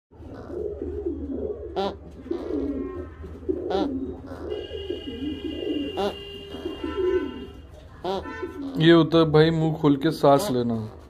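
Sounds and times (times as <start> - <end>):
pigeons cooing: 0.1 - 9.2.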